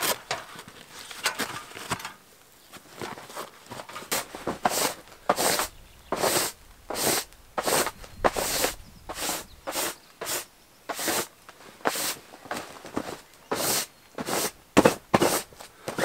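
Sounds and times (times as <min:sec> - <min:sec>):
hand brush sweeping fabric: 0:03.3 - 0:16.0.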